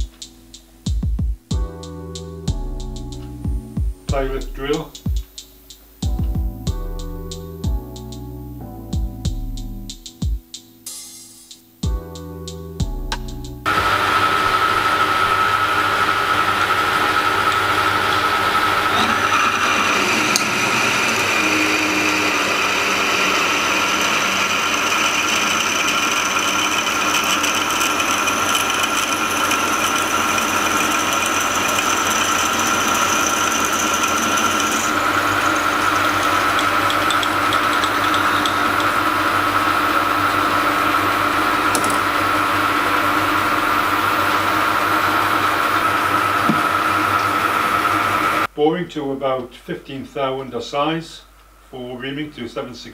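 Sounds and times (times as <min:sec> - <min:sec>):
metal lathe humming and whining: 0:13.6 - 0:48.5.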